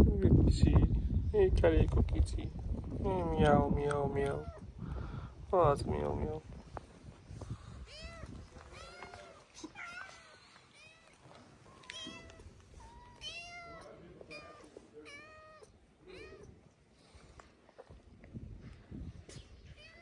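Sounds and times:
cats meowing: 7.7s - 16.7s, 19.6s - 20.0s.

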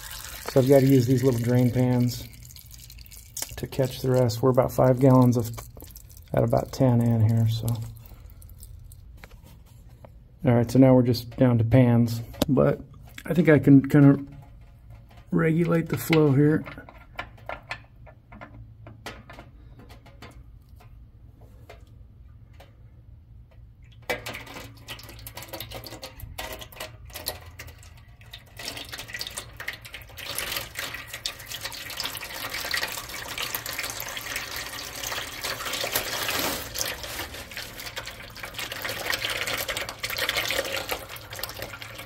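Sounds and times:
oil pouring into metal pan: 0.0s - 9.5s, 23.8s - 42.0s.

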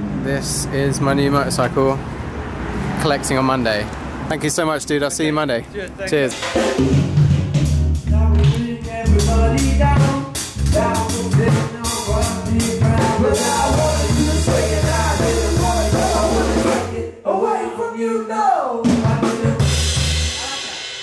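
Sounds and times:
drum beat: 6.1s - 16.9s, 18.9s - 21.0s
keyboard playing: 6.1s - 16.9s
heavy bass pulse: 6.5s - 17.0s
person singing into a microphone: 8.1s - 19.8s.

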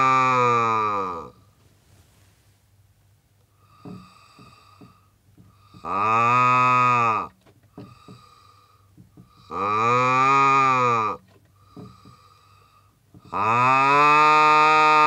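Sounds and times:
synthetic vowel buzz: 9.5s - 11.2s, 13.3s - 15.0s.

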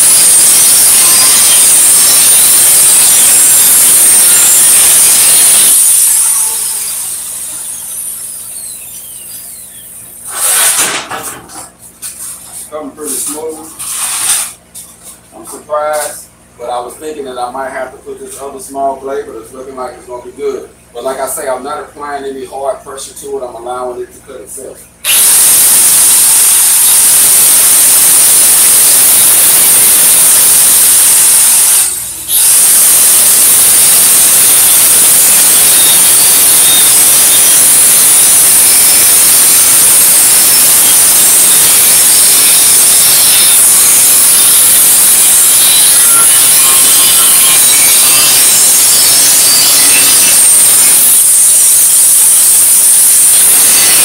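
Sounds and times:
angle grinder cutting steel: 0.0s - 9.6s, 10.2s - 11.1s, 25.1s - 54.0s.

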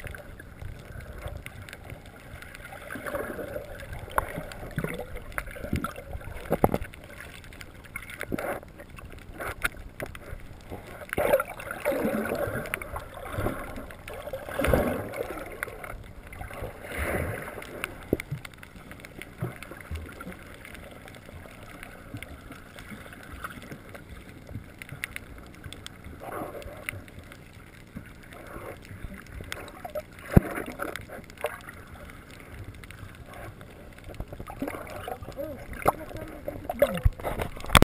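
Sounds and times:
water swirling and gurgling underwater: 0.0s - 37.9s
small clicks: 17.4s - 37.8s.

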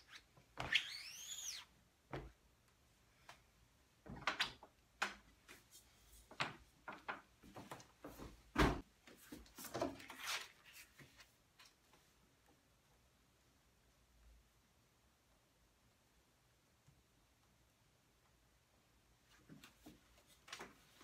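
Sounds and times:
paper rustling: 9.1s - 12.0s.

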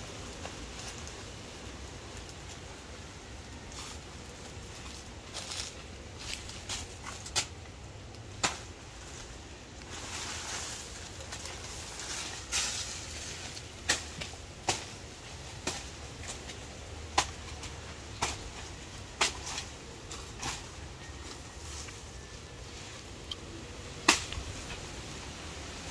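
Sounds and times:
leaves rustling: 0.0s - 25.9s
machete chopping plant stalk: 24.0s - 24.4s.

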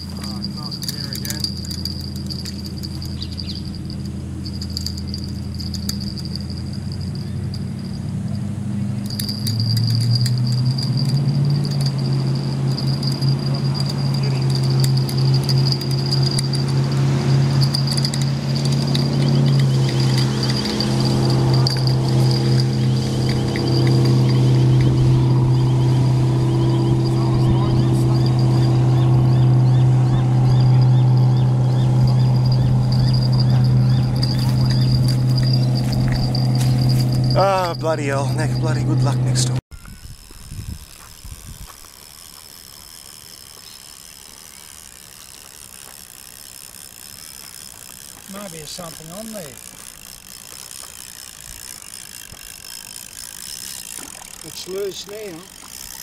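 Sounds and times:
fishing reel clicking: 0.0s - 8.0s, 9.0s - 38.8s, 39.8s - 56.0s
high chirps: 0.0s - 8.1s, 8.9s - 38.9s
low steady hum: 0.0s - 41.6s
high insect drone: 0.0s - 56.0s.

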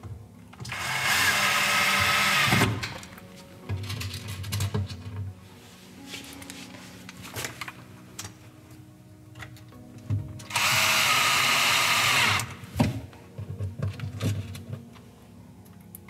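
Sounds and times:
cordless drill driving screw: 0.7s - 3.0s, 10.5s - 12.6s.

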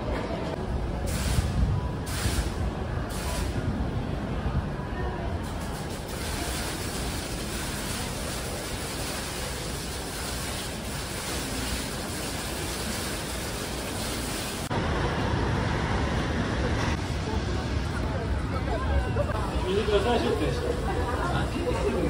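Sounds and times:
city street noise: 0.0s - 22.0s
low traffic rumble: 0.0s - 22.0s
hiss of falling water droplets: 5.5s - 14.7s.

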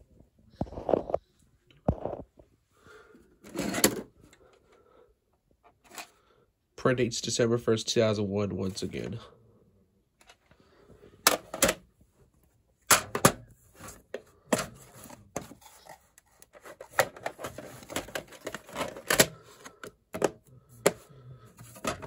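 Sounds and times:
plastic cassette case clicks: 16.8s - 21.0s.

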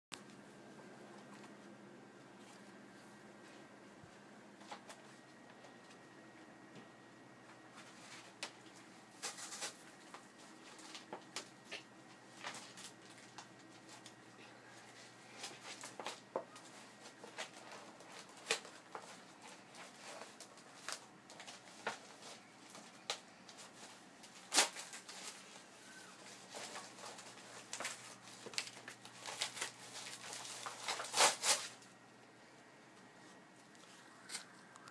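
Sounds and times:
paper ripping: 9.2s - 9.9s, 23.6s - 31.9s.

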